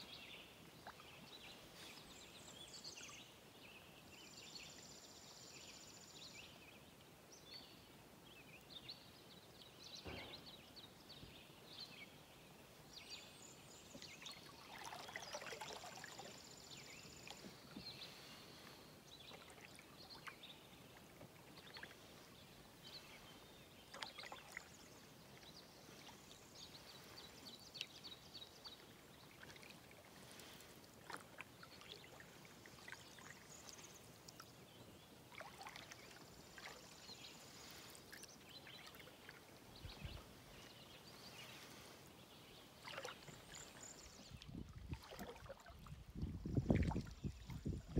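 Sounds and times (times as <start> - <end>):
canoe paddle strokes in water: 13.4 - 47.9
water dripping off paddle: 23.9 - 25.5, 27.7 - 34.6, 35.3 - 36.9, 42.8 - 47.1.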